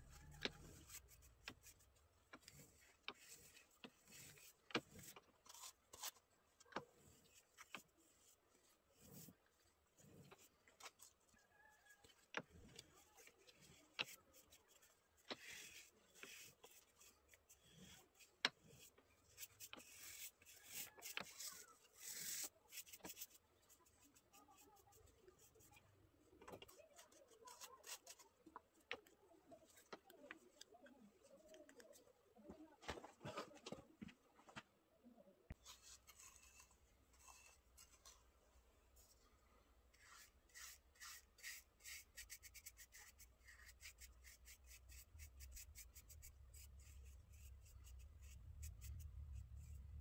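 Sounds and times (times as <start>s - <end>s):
paintbrush bristle swishes: 13.0s - 25.8s, 40.0s - 49.8s.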